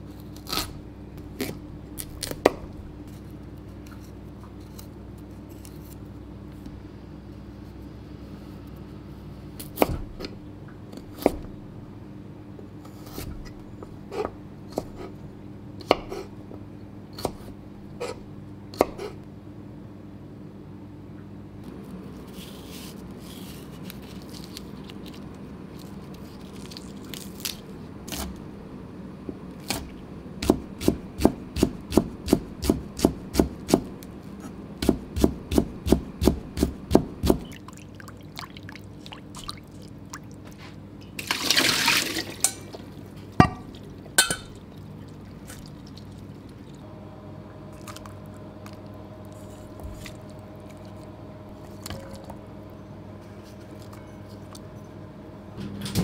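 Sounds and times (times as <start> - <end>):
knife chopping on plastic board: 29.7 - 33.9, 34.8 - 37.5
liquid pouring: 41.2 - 42.9.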